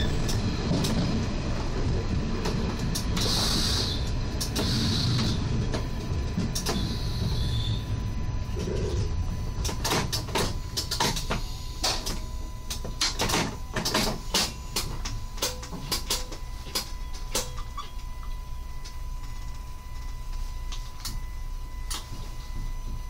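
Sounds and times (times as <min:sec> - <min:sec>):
steady low rumble: 0:00.0 - 0:23.0
faint steady tone: 0:10.6 - 0:23.0.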